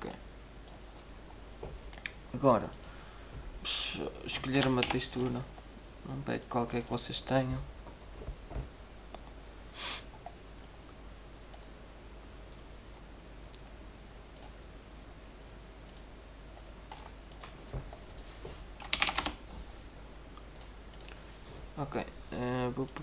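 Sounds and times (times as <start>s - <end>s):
computer keyboard clicks: 10.6s - 10.8s, 11.5s - 11.8s, 14.4s - 14.6s, 15.9s - 16.1s, 16.9s - 18.2s, 18.8s - 19.4s
mouse clicks: 11.5s - 11.8s.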